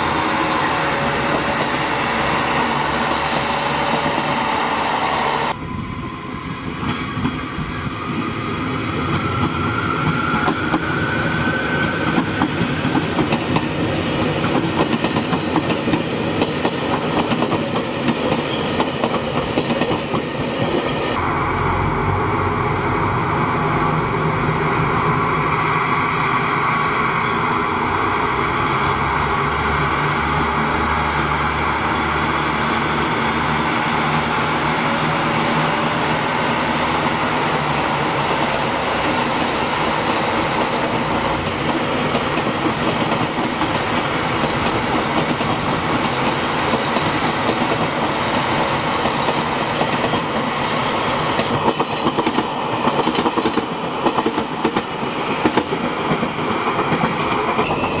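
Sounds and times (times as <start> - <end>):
diesel train engine rumbling: 20.9 - 58.0
train wheels clacking over rail joints: 51.3 - 57.9.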